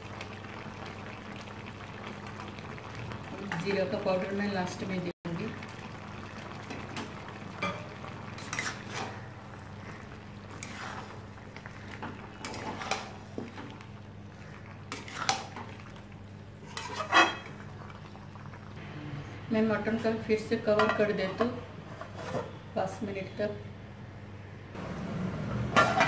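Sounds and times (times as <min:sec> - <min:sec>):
spatula scraping a pan: 0:07.6 - 0:09.3, 0:09.9 - 0:13.6, 0:14.9 - 0:15.5, 0:16.6 - 0:17.7, 0:21.8 - 0:22.6.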